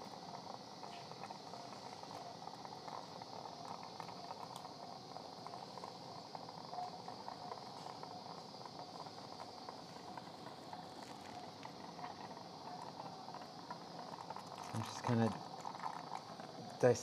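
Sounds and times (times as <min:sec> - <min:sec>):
constant hiss: 0:00.0 - 0:17.0
suction tube gurgling: 0:05.3 - 0:17.0.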